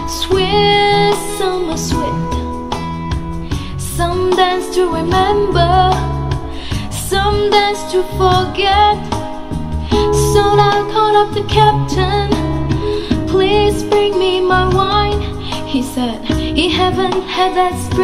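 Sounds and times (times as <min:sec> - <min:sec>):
pop song over speakers: 0:00.0 - 0:18.0.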